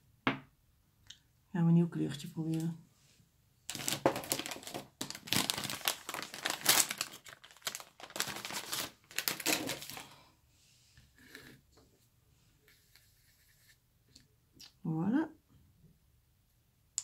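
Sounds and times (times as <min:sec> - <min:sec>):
paper tissue crumpling: 0:03.7 - 0:10.2.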